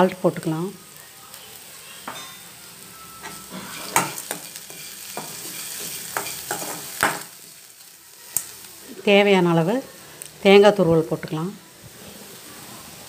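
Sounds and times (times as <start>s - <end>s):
food sizzling in oil: 0.0s - 13.0s
steel spoon scraping and knocking pan: 3.2s - 7.3s.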